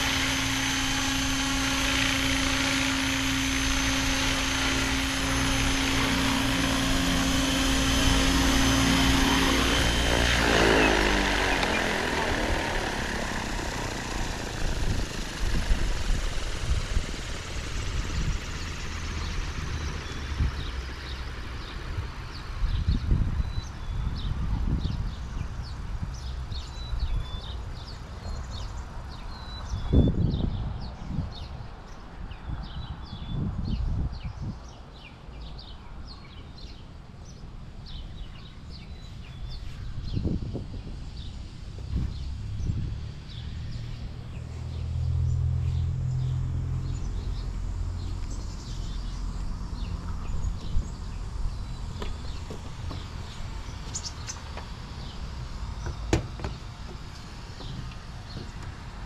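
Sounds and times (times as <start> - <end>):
wind on microphone: 0.0 - 18.8, 21.8 - 27.4, 29.6 - 34.7, 38.1 - 44.2
low gusty rumble: 0.0 - 34.7
rc helicopter rotor whine: 0.0 - 59.0
small birds chirping: 0.0 - 59.0
bird chirps: 42.1 - 55.2.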